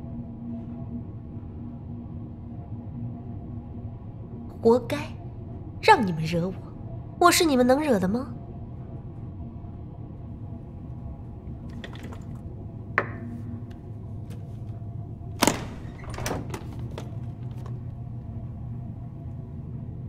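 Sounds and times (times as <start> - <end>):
low steady drone: 0.0 - 16.6, 17.2 - 20.0
latch clacking open: 15.4 - 17.8.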